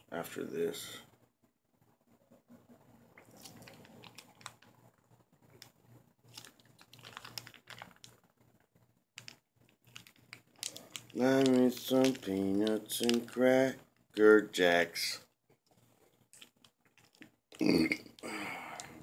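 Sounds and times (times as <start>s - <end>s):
plastic packet crinkling: 3.2s - 14.2s, 15.7s - 18.2s.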